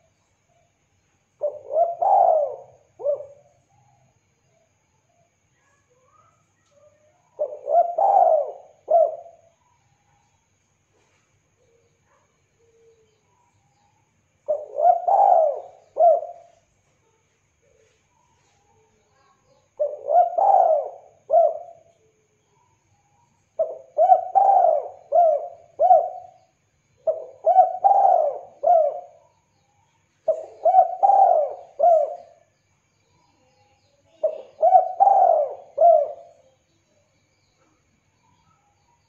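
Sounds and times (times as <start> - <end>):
dove cooing: 1.4 - 3.9, 7.4 - 9.5, 14.5 - 16.6, 19.7 - 21.9, 23.6 - 29.2, 30.2 - 32.5, 34.1 - 36.6.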